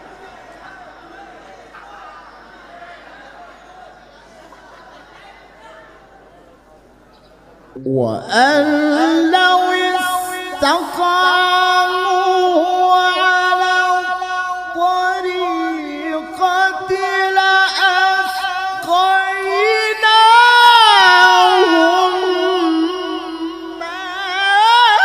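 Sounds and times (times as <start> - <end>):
man reciting melodically: 7.8 - 25.0.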